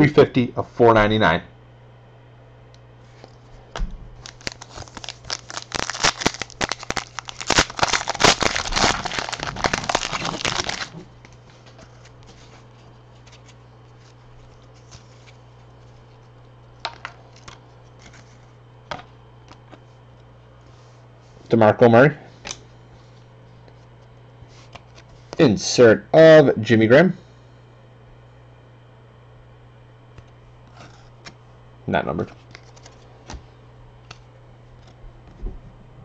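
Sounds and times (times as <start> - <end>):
wrapper tearing and crinkling: 4.2 - 11.3.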